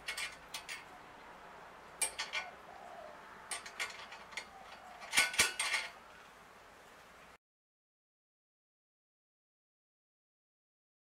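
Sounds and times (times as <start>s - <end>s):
metal bolt and nut clinking: 0.0s - 1.0s, 2.0s - 2.5s, 3.5s - 6.0s.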